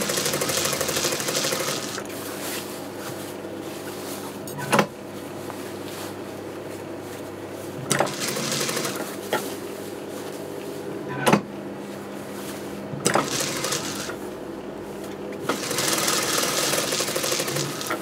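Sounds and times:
sewing machine motor humming: 0:00.0 - 0:02.1, 0:07.9 - 0:09.1, 0:13.0 - 0:14.2, 0:15.5 - 0:18.0
sewing machine stitching: 0:00.0 - 0:02.1, 0:07.9 - 0:09.1, 0:13.0 - 0:14.2, 0:15.5 - 0:18.0.

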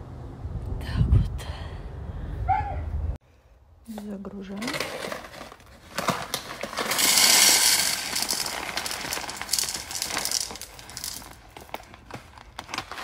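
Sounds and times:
bag rustling: 0:04.6 - 0:13.0.

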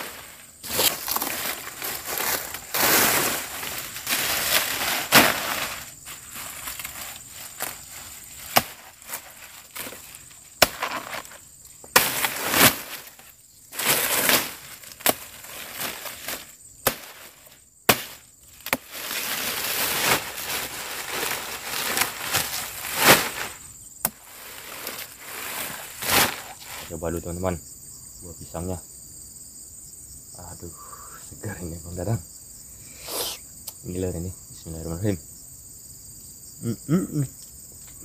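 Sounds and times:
dry leaves rustling: 0:00.0 - 0:27.0
machete chopping plant trunk: 0:08.5 - 0:09.2, 0:10.6 - 0:13.0, 0:13.8 - 0:15.3, 0:16.3 - 0:17.3, 0:17.9 - 0:18.9.

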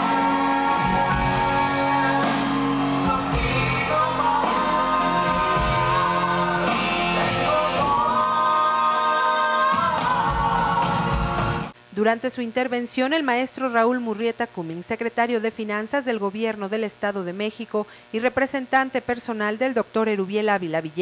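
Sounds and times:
band playing drums and guitar: 0:00.0 - 0:11.7
man and woman singing duet: 0:00.0 - 0:11.7.

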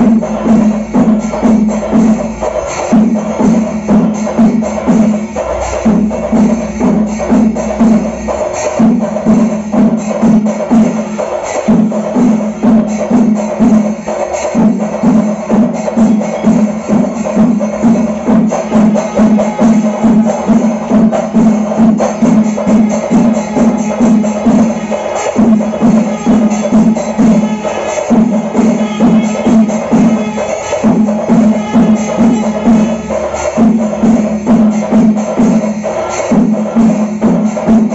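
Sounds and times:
cymbal strokes: 0:00.0 - 0:37.9
rapid drum strokes: 0:00.0 - 0:37.9
held wind instrument tone: 0:22.6 - 0:34.3.

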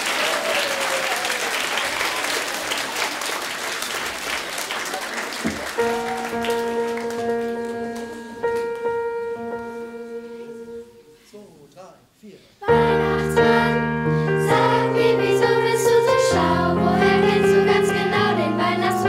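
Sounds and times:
audience applause: 0:00.0 - 0:08.6
keyboard playing held notes: 0:05.7 - 0:11.2.

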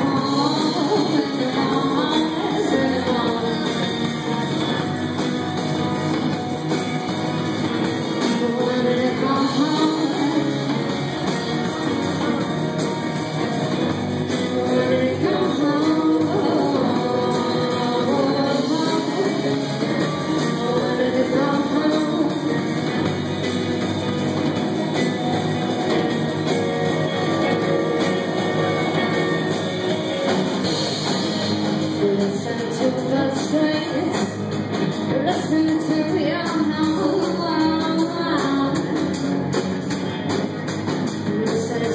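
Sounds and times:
woman singing: 0:00.0 - 0:04.4, 0:08.0 - 0:13.1, 0:14.2 - 0:23.0, 0:31.8 - 0:34.4, 0:35.0 - 0:39.2, 0:41.2 - 0:41.9
drums: 0:00.0 - 0:41.9
electric guitars: 0:00.0 - 0:41.9.

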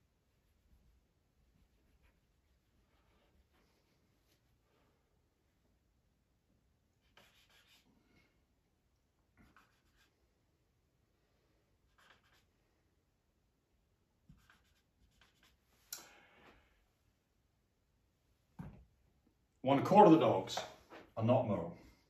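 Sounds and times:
marker scratching on whiteboard: 0:07.0 - 0:07.9, 0:09.4 - 0:10.2, 0:11.8 - 0:12.5, 0:14.2 - 0:15.7.

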